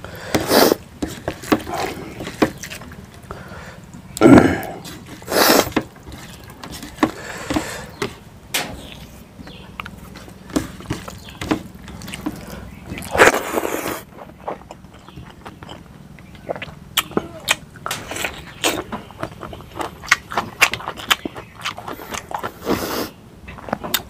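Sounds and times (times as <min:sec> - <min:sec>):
fingers mixing wet food: 0:00.0 - 0:22.7
mouthfuls being eaten: 0:00.2 - 0:00.8, 0:04.1 - 0:05.8, 0:12.0 - 0:23.2.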